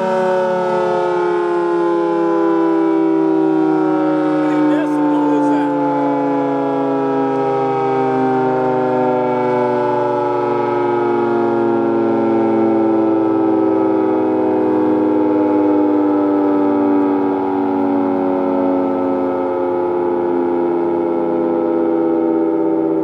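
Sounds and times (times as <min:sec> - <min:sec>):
dual-tone warning siren: 0:00.0 - 0:23.0.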